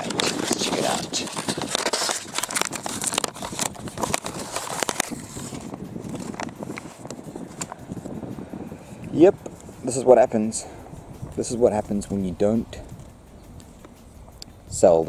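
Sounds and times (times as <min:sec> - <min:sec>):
paper wrapper crinkling: 0:00.0 - 0:07.8.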